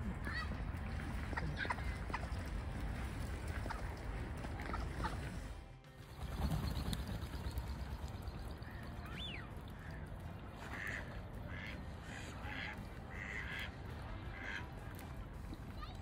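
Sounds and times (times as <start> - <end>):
ducks quacking: 0.3 - 2.6, 8.5 - 14.7.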